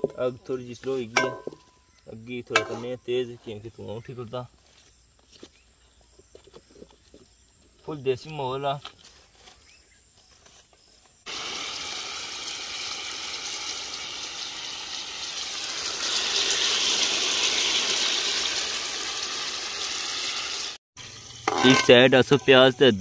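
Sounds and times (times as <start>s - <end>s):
chicken sizzling in a pot: 11.2s - 23.0s.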